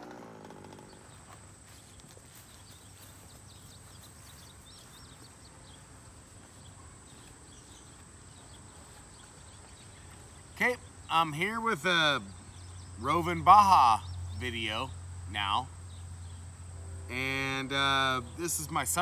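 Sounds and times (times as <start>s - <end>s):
small two-stroke engine: 0.0s - 1.4s.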